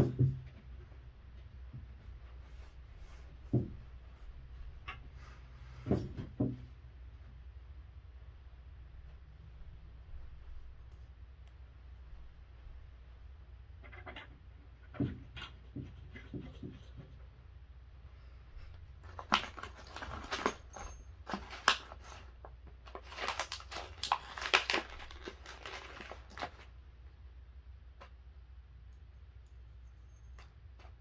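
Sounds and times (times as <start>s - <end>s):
plastic bag crinkling: 19.0s - 26.8s.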